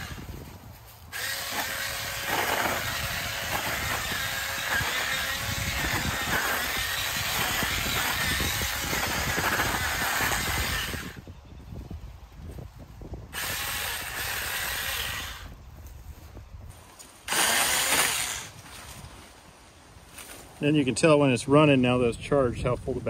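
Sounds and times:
cordless chainsaw cutting brush: 0.0s - 11.2s, 13.3s - 15.6s, 17.1s - 18.8s.

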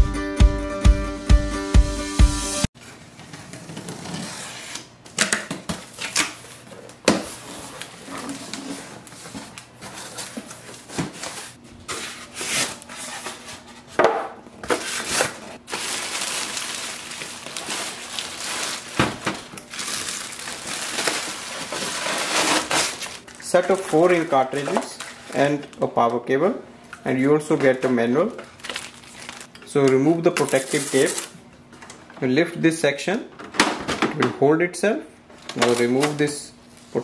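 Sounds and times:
plastic bag rustling: 5.8s - 14.0s, 14.6s - 25.8s, 27.1s - 29.5s, 30.4s - 31.4s
cardboard and foam scraping: 20.6s - 23.2s
box cutter slicing tape: 21.8s - 23.1s.

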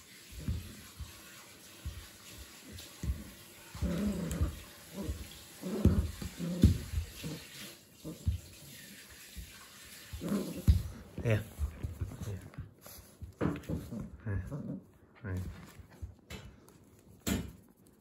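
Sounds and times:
puppy dragging doll on carpet: 1.8s - 8.7s, 9.4s - 16.0s.

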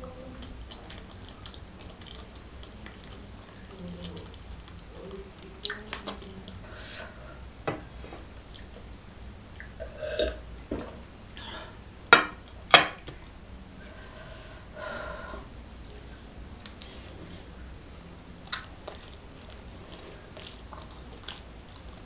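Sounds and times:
person gulping and swallowing: 8.4s - 11.0s, 18.4s - 22.0s
burp: 9.8s - 10.4s.

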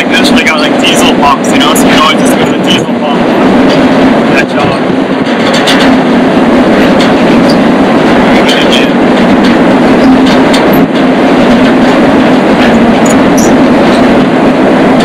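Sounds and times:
train rumble and rattle: 0.0s - 15.0s
metallic clicks and squeaks: 12.7s - 13.6s.

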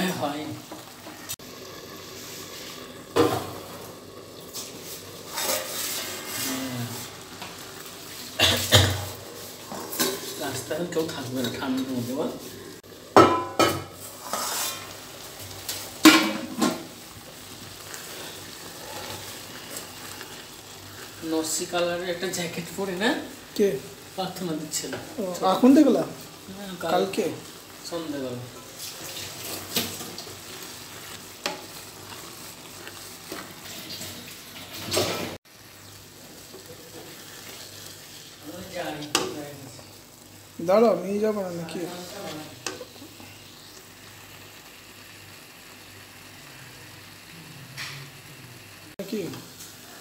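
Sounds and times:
food sizzling faintly in pan: 0.0s - 50.0s
wooden spoon scraping pan: 2.2s - 12.6s, 13.9s - 15.0s
metal lid clanking on pan: 13.2s - 13.9s, 16.0s - 16.8s.

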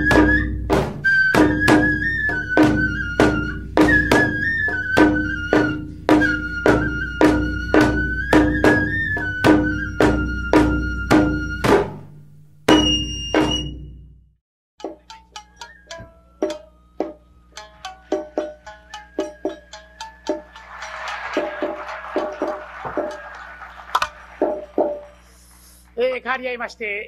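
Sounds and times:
bamboo flute melody: 0.0s - 12.1s, 12.7s - 14.0s, 14.9s - 25.3s
shamisen plucked: 14.8s - 23.2s.

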